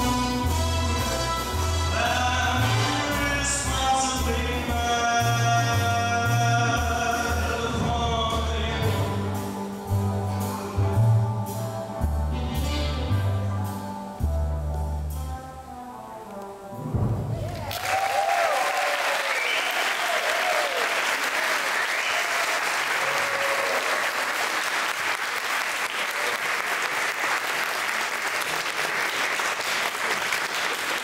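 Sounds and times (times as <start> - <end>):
audience applauding: 17.4 - 31.0.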